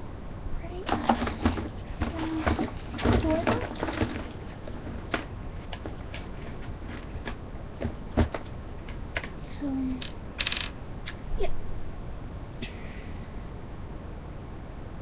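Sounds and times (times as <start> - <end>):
small objects clicking and tapping: 10.0 - 10.8.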